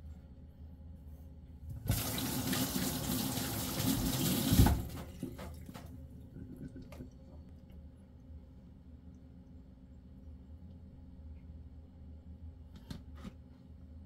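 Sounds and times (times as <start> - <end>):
tap running into metal sink: 1.9 - 5.9.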